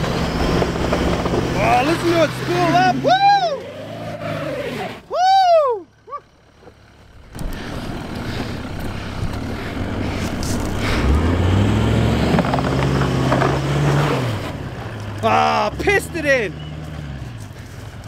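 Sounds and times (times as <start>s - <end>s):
engine pulling under load: 0.0s - 18.0s
person whooping: 2.7s - 3.8s, 5.0s - 6.3s.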